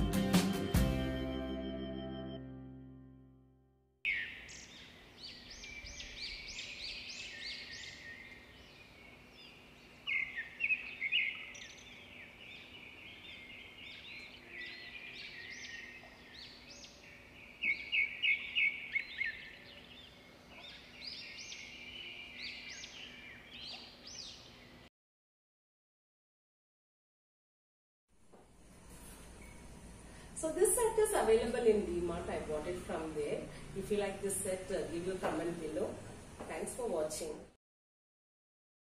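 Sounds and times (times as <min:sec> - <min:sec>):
small birds chirping: 0:04.1 - 0:24.9.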